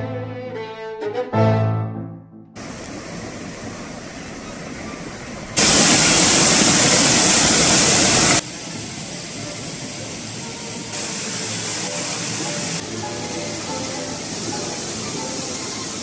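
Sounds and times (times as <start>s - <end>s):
river rapids rushing: 11.0s - 16.0s.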